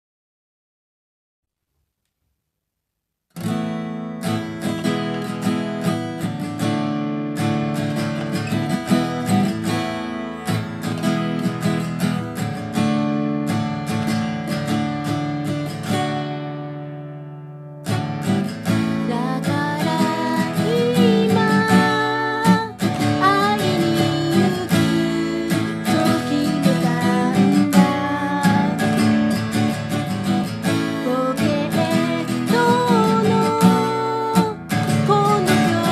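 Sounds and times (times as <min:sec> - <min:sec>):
acoustic guitar picked: 0:03.3 - 0:35.9
woman singing: 0:18.7 - 0:35.9.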